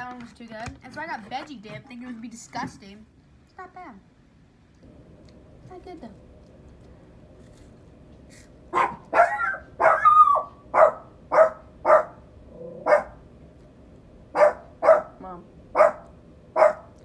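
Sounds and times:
dog barking: 8.7 - 12.2, 12.8 - 13.2, 14.3 - 17.0.

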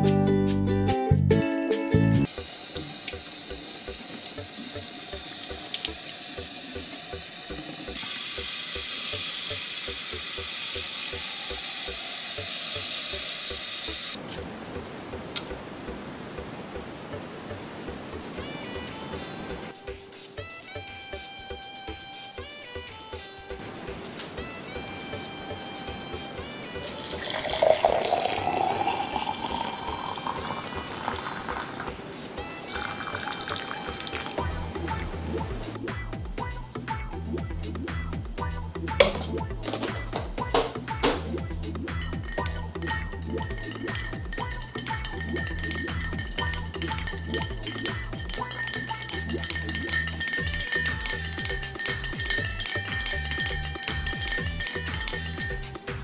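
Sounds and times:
background music: 0.0 - 56.0
tap water running: 2.3 - 14.2, 26.6 - 34.8, 42.0 - 55.6
water pouring into metal pot: 2.3 - 14.2, 26.7 - 34.7, 42.0 - 55.7
background music with beat: 34.1 - 56.0.

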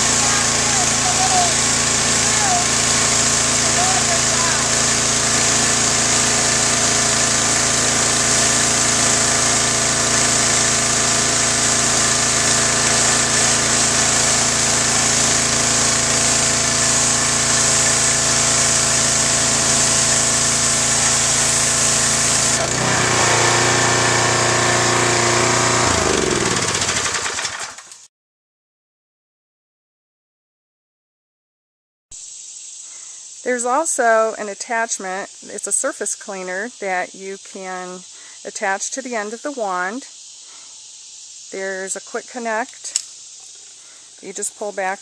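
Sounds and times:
water jet hissing on concrete: 0.0 - 27.5, 32.2 - 45.0
pressure washer engine running: 0.0 - 27.9.

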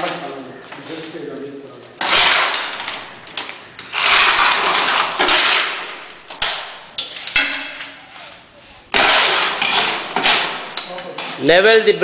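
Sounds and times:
concrete scraping and pouring: 2.0 - 11.6.

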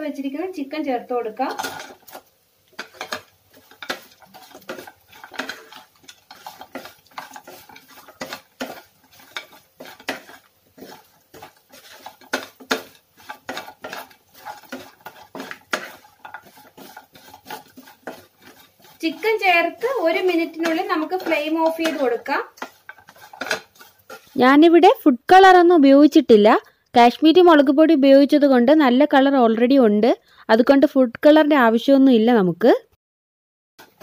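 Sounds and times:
wooden spatula scraping a pan: 1.3 - 25.0, 33.8 - 34.0.

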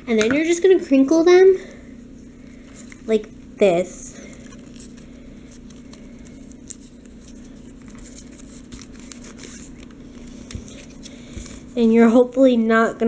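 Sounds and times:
steady low hum: 0.0 - 13.0
paper crinkling: 4.2 - 12.5.

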